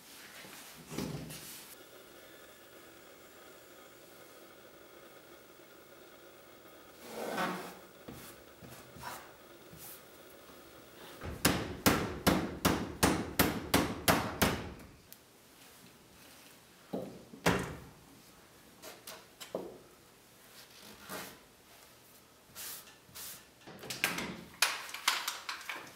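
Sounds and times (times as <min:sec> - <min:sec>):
hammer striking wooden cabinet: 0:11.3 - 0:14.8.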